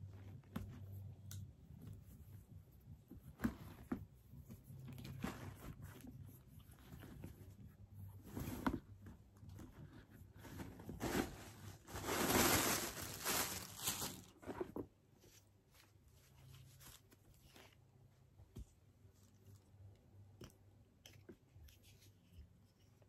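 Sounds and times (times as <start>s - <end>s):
packing material rustling: 10.5s - 14.6s.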